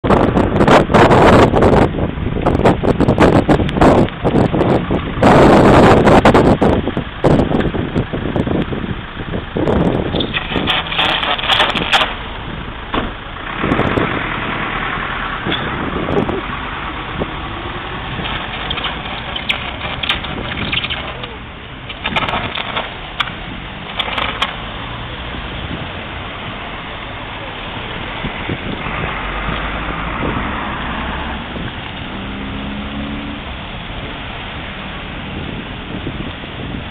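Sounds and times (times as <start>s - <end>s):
minibus engine passing: 0.1s - 36.9s
electric arcing crackles: 10.1s - 12.4s, 18.0s - 24.9s
tyres hissing on slush: 10.2s - 12.2s, 17.4s - 21.4s.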